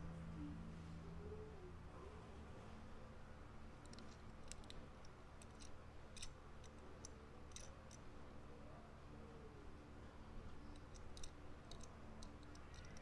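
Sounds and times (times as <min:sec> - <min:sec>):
faint low hum: 0:00.0 - 0:13.0
toy car clicking: 0:03.8 - 0:08.0, 0:10.7 - 0:13.0.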